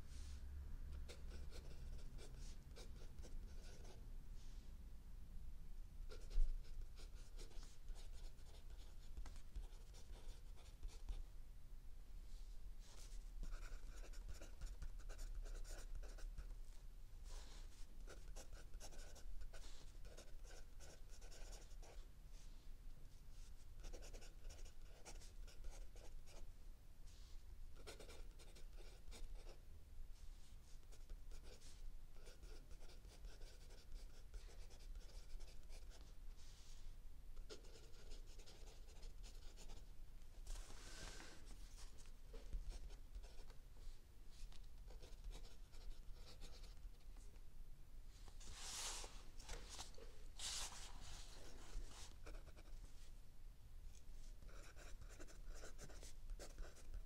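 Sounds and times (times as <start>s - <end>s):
pencil scratching on paper: 1.1s - 4.0s, 6.1s - 11.2s, 13.4s - 16.4s, 17.4s - 22.0s, 23.8s - 26.4s, 27.8s - 29.6s, 30.8s - 36.0s, 37.5s - 39.9s, 44.9s - 46.8s, 48.4s - 52.8s, 54.4s - 57.0s.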